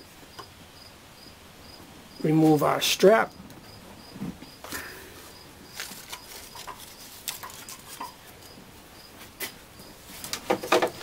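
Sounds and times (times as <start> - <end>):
cricket chirping: 0.3 - 2.2, 3.3 - 10.0.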